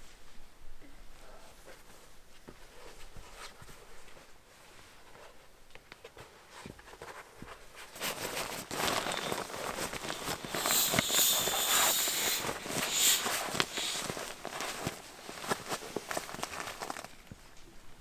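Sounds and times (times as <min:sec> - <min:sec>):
fabric rustling: 0:01.5 - 0:17.6
air hissing out: 0:08.8 - 0:15.0.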